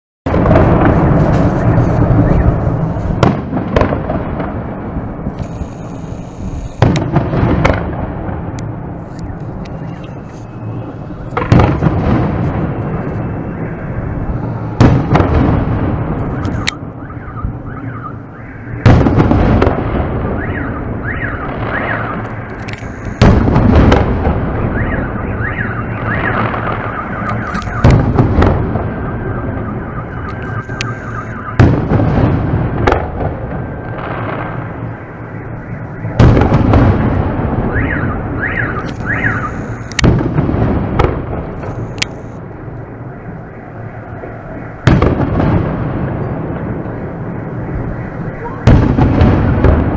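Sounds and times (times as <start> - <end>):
rolling echo: 0.3 - 5.9, 6.7 - 49.9
firework shells bursting: 5.3 - 7.9.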